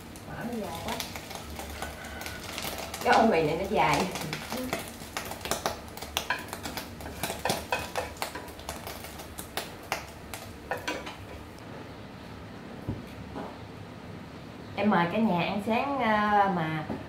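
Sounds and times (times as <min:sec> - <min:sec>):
utensil scraping frying pan: 0:00.6 - 0:09.4.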